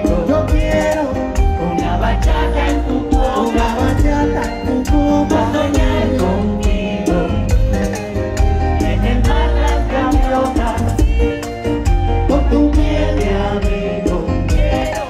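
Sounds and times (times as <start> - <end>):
live bachata band: 0.0 - 15.0
person singing: 0.0 - 15.0.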